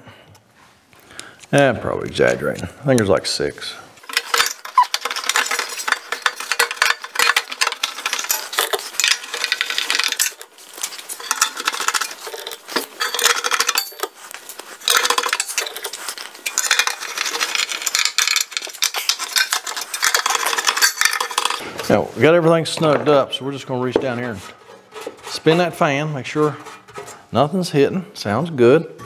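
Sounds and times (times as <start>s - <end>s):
screwdriver clicking and scraping: 4.0s - 21.6s.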